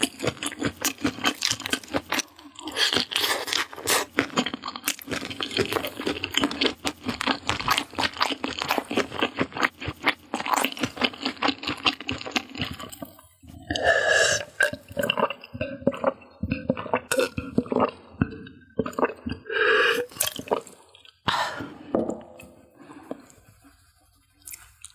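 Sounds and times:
close chewing crunches: 0.0s - 19.4s
throaty gulps swallowing: 12.1s - 23.3s.

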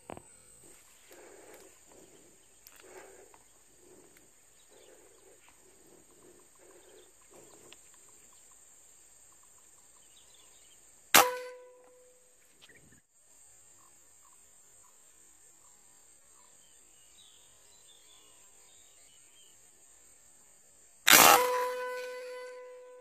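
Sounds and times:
air rifle shot: 11.2s - 11.6s, 21.1s - 22.5s
high-pitched insect buzz: 13.7s - 23.0s.

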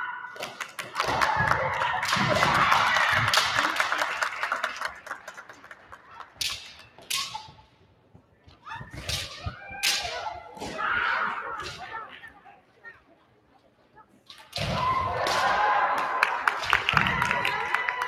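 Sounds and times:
people shouting: 8.7s - 12.1s, 14.6s - 16.2s
bamboo swords striking: 9.0s - 10.8s.

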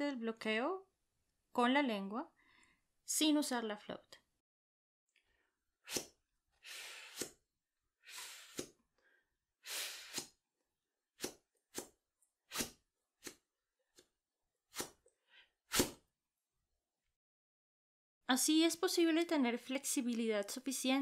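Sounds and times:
person blowing sharp air puffs: 5.8s - 7.4s, 8.0s - 8.8s, 9.6s - 10.4s.

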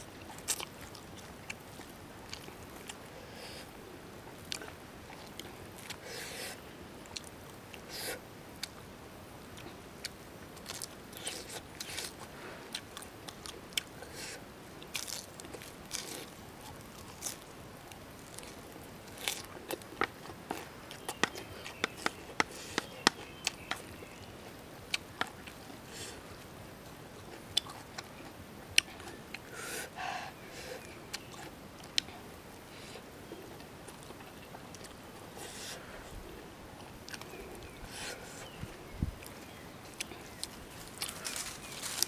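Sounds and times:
lettuce crunching: 9.6s - 24.3s, 39.2s - 42.0s.

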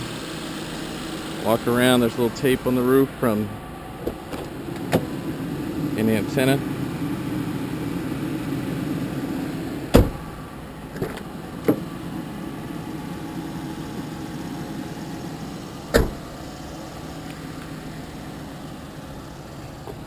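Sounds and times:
car engine idling: 0.0s - 20.0s
car door shutting: 4.0s - 5.3s, 9.8s - 12.2s, 15.8s - 16.4s.

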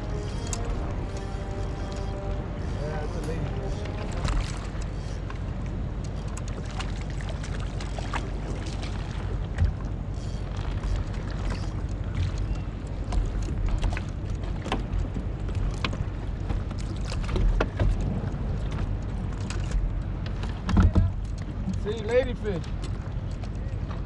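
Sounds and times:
wind buffeting microphone: 0.0s - 11.4s
light clicks and splashes: 0.0s - 24.0s
water lapping against boat hull: 0.0s - 24.0s.

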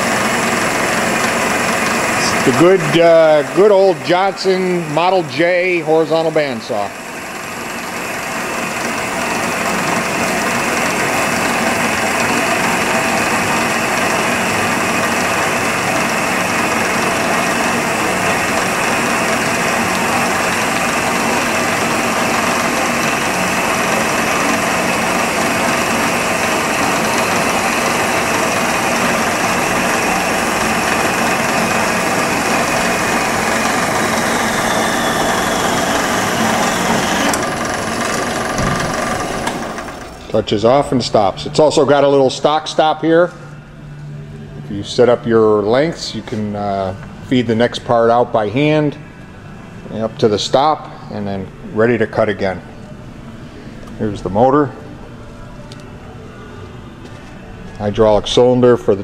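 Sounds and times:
band saw cutting metal bar: 0.0s - 40.4s
faint falling motor whine: 0.0s - 44.8s.

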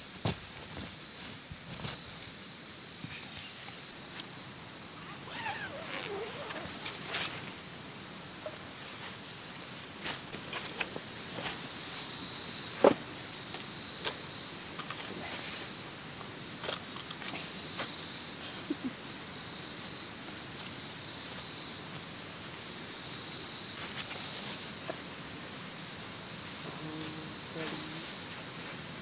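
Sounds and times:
rustles in a nylon tent: 0.0s - 4.2s, 5.0s - 13.3s, 20.3s - 29.0s
high-pitched insect chorus: 0.0s - 29.0s.

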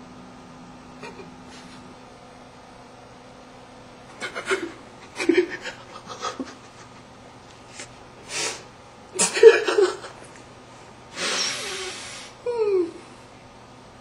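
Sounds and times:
man's stifled chuckles: 1.0s - 1.3s, 4.2s - 7.1s, 9.2s - 10.2s
sharp breath out: 11.2s - 12.4s.

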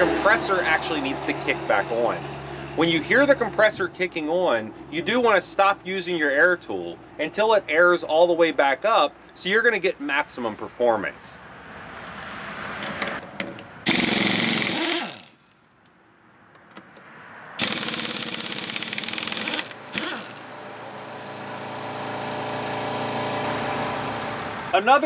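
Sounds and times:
air impact wrench hammering: 12.9s - 15.6s, 17.6s - 24.4s
air compressor motor hum: 13.9s - 15.4s, 17.6s - 24.7s.

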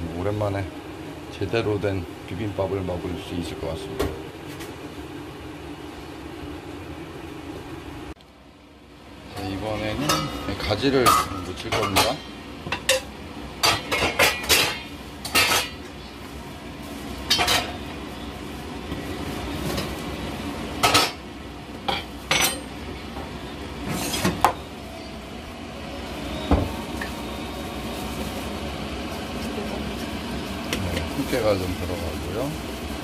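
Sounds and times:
low steady hum: 0.0s - 23.8s.

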